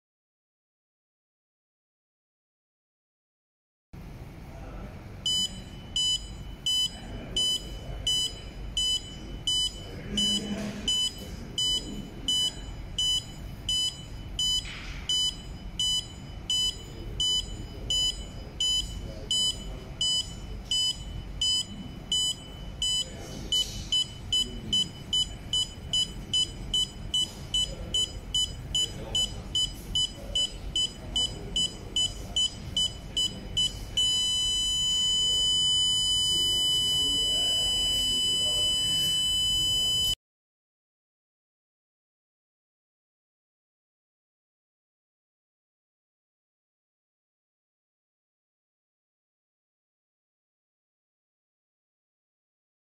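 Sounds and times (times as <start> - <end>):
continuous buzzer tone: 5.1 - 40.2
piezo buzzer beeping: 5.3 - 40.2.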